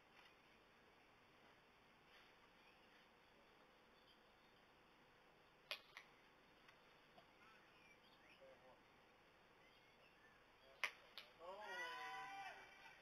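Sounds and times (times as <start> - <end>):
faint bird chirps: 2.1 - 12.3.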